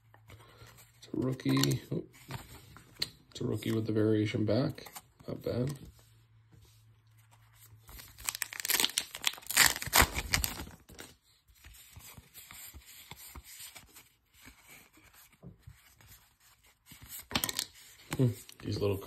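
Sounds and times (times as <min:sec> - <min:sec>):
cards rustling and sliding: 0:00.0 - 0:04.0, 0:04.8 - 0:18.8
wrapper tearing and crinkling: 0:08.0 - 0:11.1.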